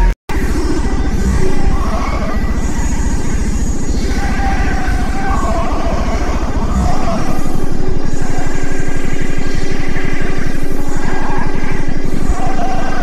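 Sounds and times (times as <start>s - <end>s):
bass-heavy music from car subwoofers: 0.0s - 13.0s.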